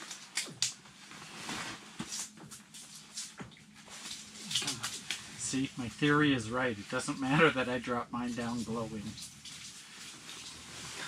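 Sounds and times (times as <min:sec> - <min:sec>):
rustling: 0:00.9 - 0:05.4.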